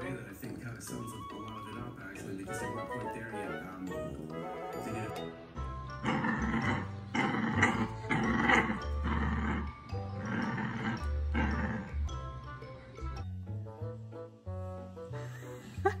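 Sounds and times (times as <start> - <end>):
background music: 0.0 - 16.0
puppy growling: 5.9 - 12.3.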